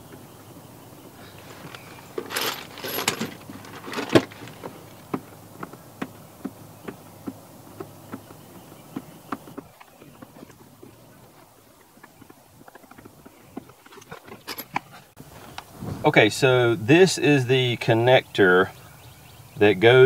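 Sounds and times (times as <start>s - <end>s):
rustling: 1.2s - 5.4s.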